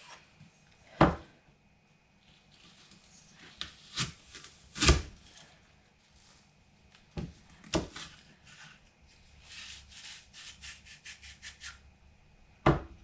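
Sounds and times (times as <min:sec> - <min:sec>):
knocks on wooden cutting board: 0:12.7 - 0:13.0.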